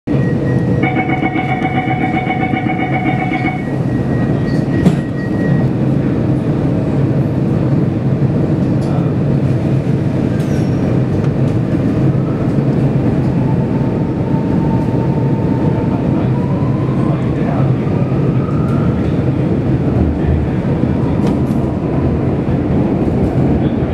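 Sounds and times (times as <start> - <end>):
high steady tones: 0.1 - 4.8
train low rumble and hum: 0.1 - 23.9.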